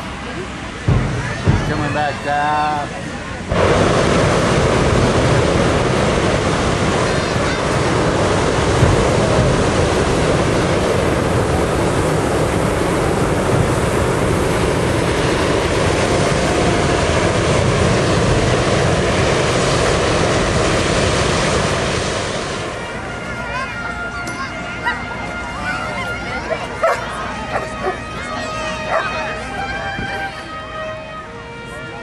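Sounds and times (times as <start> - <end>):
propane burner roaring: 0.0 - 23.1.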